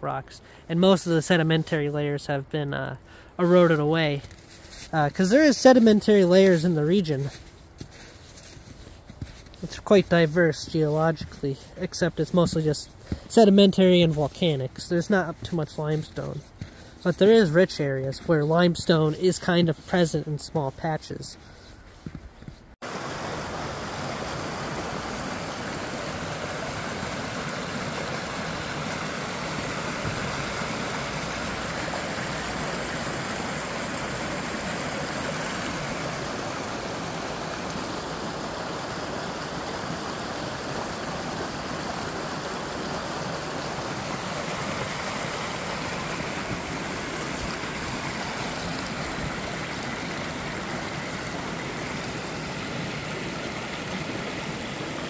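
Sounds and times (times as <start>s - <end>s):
brook rushing over stones: 22.6s - 55.0s.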